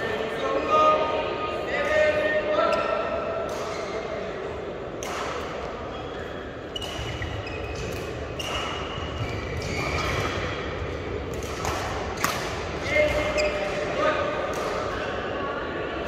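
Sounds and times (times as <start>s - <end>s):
rackets striking shuttlecock: 5.0s - 5.7s, 11.3s - 13.4s
shoe squeaks on court: 5.9s - 10.4s, 12.9s - 13.7s.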